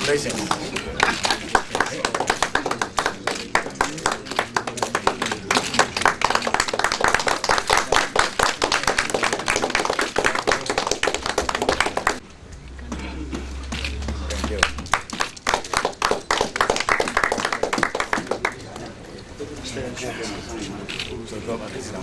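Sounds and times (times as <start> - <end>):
applause: 0.1 - 12.2, 14.5 - 18.8.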